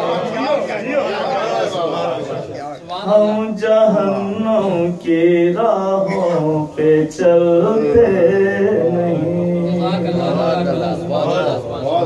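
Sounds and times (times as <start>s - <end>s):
man chanting into a microphone: 2.8s - 12.0s.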